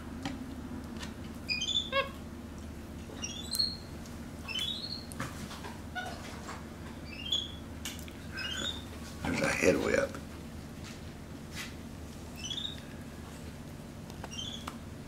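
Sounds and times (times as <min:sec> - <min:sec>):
monkey chirping: 0:01.5 - 0:02.2, 0:03.2 - 0:03.9, 0:04.5 - 0:05.0, 0:07.1 - 0:07.6, 0:08.4 - 0:08.9, 0:12.4 - 0:12.8, 0:14.3 - 0:14.6.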